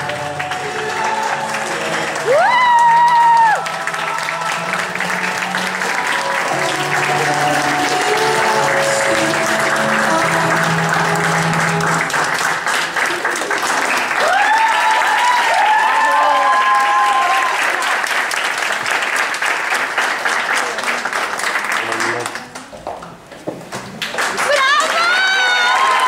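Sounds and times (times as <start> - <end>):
music with held notes: 0.0 - 12.7
audience clapping: 0.0 - 26.0
people whooping and cheering: 0.4 - 8.9, 13.0 - 18.0, 24.5 - 26.0.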